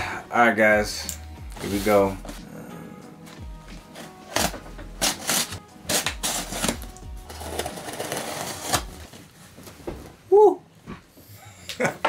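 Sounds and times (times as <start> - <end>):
knife slicing through tape: 4.3 - 6.8.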